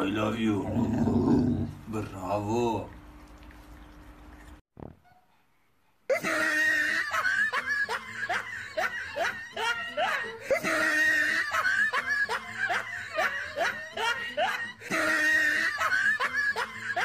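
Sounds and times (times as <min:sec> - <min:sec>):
looped laughter: 0:06.1 - 0:17.0.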